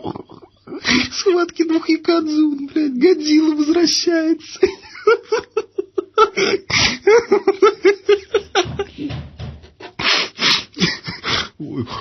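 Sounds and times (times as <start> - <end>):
person laughing hard: 4.7 - 10.1.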